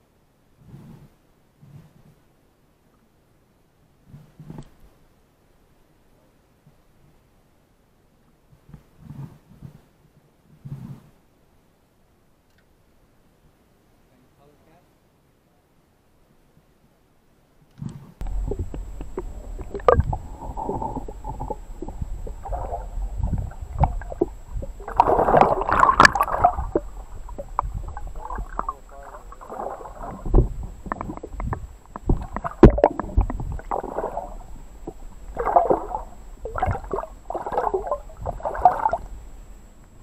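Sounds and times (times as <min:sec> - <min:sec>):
muffled underwater sloshing and splashing: 0:18.2 - 0:39.7.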